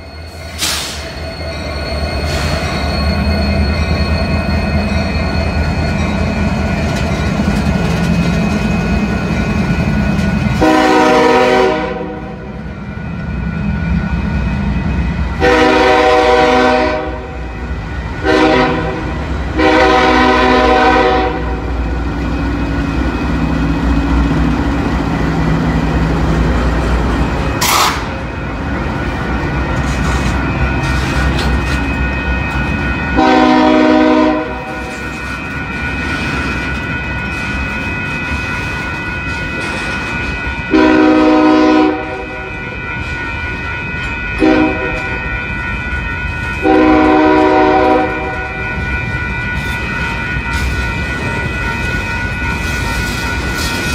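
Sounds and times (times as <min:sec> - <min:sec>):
train rumbling past: 0:00.0 - 0:53.9
locomotive horn blasts: 0:10.5 - 0:12.4, 0:15.4 - 0:17.4, 0:18.2 - 0:21.6, 0:33.2 - 0:34.9, 0:40.7 - 0:42.4, 0:44.4 - 0:45.2, 0:46.6 - 0:48.6.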